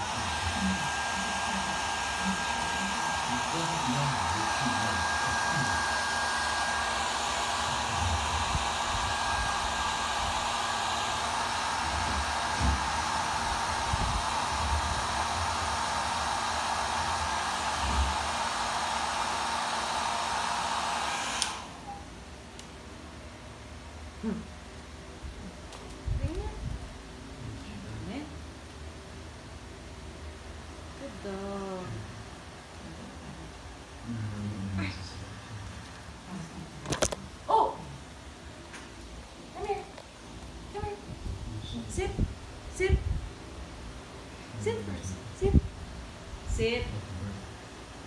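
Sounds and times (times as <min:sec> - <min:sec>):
hair dryer running: 0:00.0 - 0:22.0.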